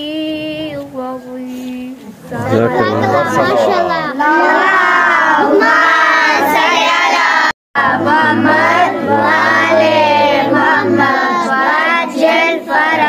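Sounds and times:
child singing melodic chant: 0.0 - 13.0.

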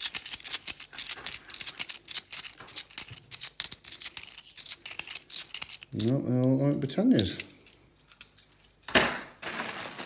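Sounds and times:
coins clinking and scraping: 0.0 - 6.6.

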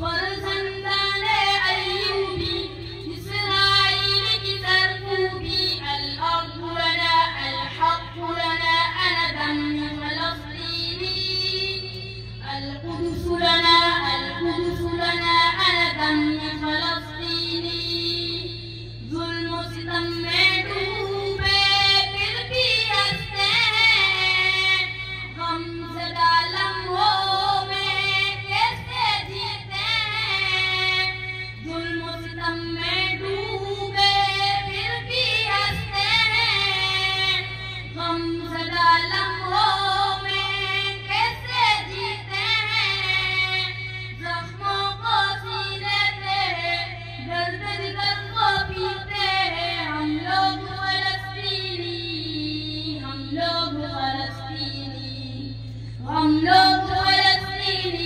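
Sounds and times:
boy singing over loudspeaker: 0.0 - 58.0
low sound system hum: 0.0 - 58.0.

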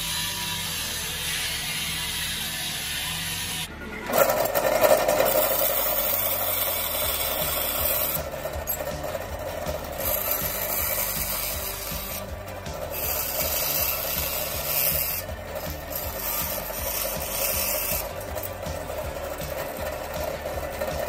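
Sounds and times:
running saw hum: 0.0 - 21.0
bandsaw cutting metal hiss: 5.2 - 21.0.

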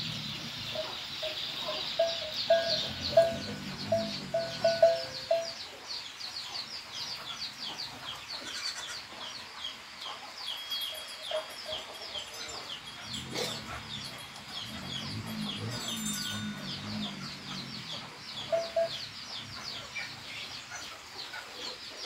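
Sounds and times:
hen clucking: 0.0 - 5.6, 11.3 - 21.8.

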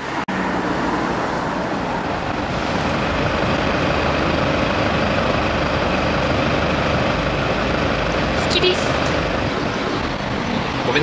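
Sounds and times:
dense rush of noise with rumble: 1.8 - 11.0.

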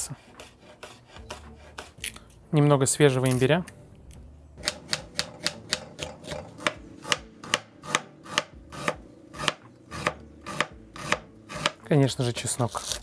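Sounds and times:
knife chopping on cutting board: 0.2 - 2.1, 4.6 - 11.8.

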